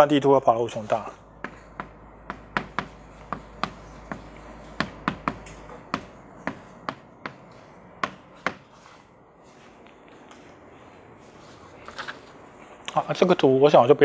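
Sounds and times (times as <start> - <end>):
chalk tapping on blackboard: 1.4 - 8.7.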